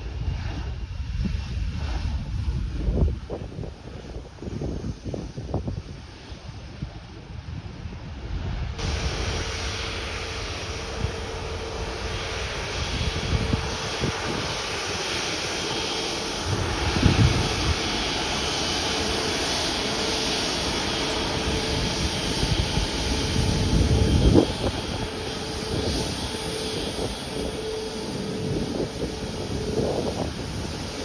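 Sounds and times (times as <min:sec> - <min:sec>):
low rumble: 0:00.0 - 0:14.5
jet engines running: 0:00.0 - 0:31.0.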